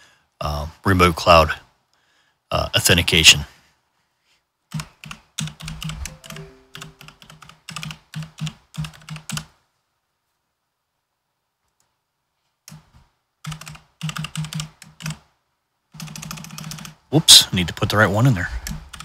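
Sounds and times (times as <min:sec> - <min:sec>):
typing on computer keyboard: 0:04.7 - 0:09.5, 0:12.7 - 0:15.2, 0:16.0 - 0:17.0, 0:18.6 - 0:19.0.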